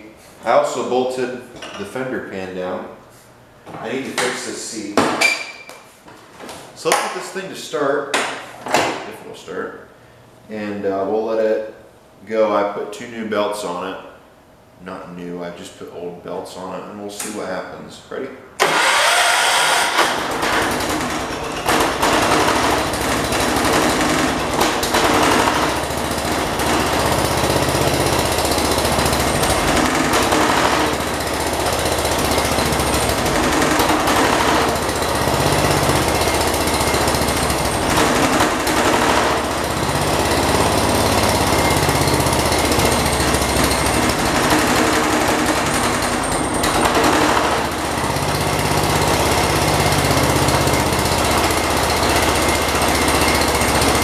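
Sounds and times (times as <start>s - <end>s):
tractor engine revving: 18.6s - 54.0s.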